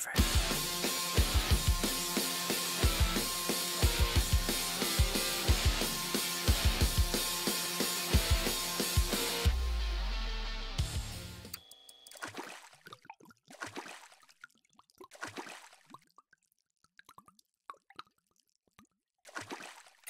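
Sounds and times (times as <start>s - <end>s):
rock music: 0.2s - 11.6s
liquid drip plops: 12.0s - 20.0s
burst of splashes: 12.1s - 16.2s, 19.3s - 20.0s.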